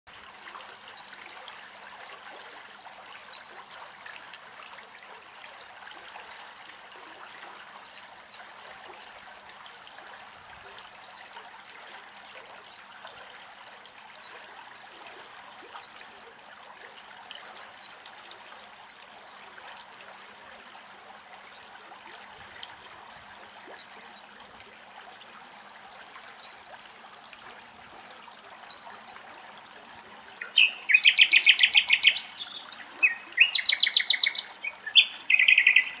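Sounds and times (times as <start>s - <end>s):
nightingale rapid song: 0.8s - 1.4s, 3.2s - 3.8s, 5.8s - 6.4s, 7.8s - 8.4s, 10.6s - 11.2s, 12.2s - 12.8s, 13.7s - 14.3s, 15.7s - 16.3s, 17.3s - 17.9s, 18.8s - 19.3s, 21.0s - 21.6s, 23.6s - 24.2s, 26.3s - 26.8s, 28.5s - 29.2s, 30.4s - 36.0s
wagtail high thin calls: 0.8s - 1.4s, 3.2s - 3.9s, 5.8s - 6.4s, 7.8s - 8.4s, 10.6s - 11.3s, 12.2s - 12.8s, 13.7s - 14.3s, 15.7s - 16.3s, 17.3s - 17.9s, 18.7s - 19.3s, 21.0s - 21.6s, 23.6s - 24.2s, 26.3s - 26.8s, 28.5s - 29.2s, 30.4s - 36.0s.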